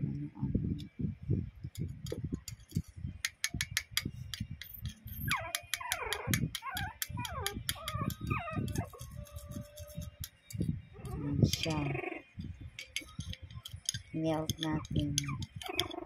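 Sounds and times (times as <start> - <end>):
spoon clicking against ceramic bowl: 1.8 - 10.6, 12.8 - 16.0
puppy whining: 5.1 - 10.1, 10.9 - 12.3, 14.8 - 16.0.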